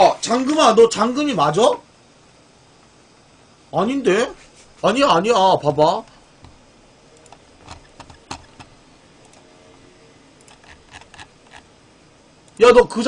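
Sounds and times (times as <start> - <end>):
computer keyboard clicks and taps: 7.2 - 8.7, 10.4 - 11.6.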